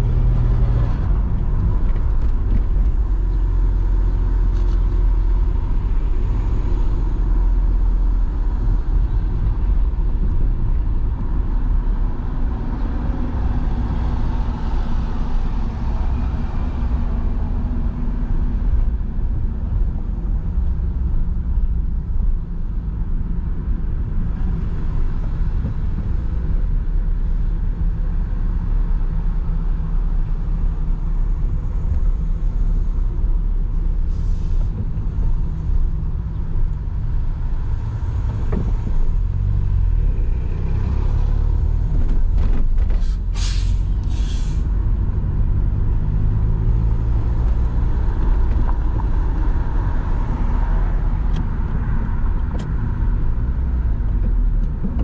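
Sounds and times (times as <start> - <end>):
car engine and road rumble: 0.0 - 55.0
short sharp hisses: 43.0 - 44.7.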